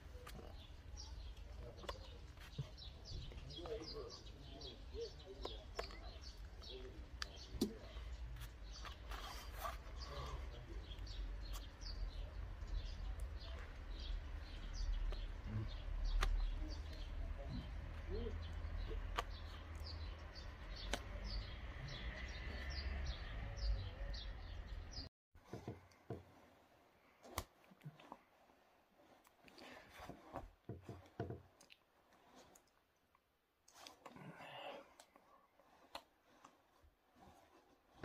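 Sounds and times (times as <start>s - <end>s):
small birds chirping: 0.0s - 25.1s.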